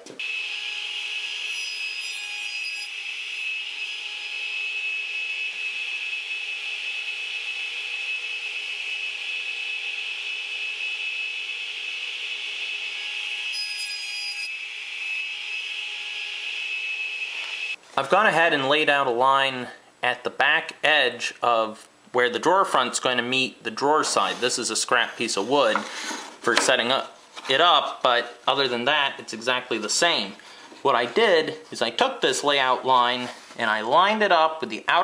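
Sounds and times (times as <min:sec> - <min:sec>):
saw cutting wood whine: 0:00.2 - 0:17.8.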